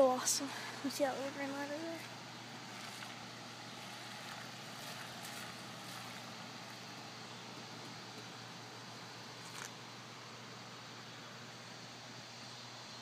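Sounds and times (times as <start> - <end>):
river water rushing: 0.0 - 10.8.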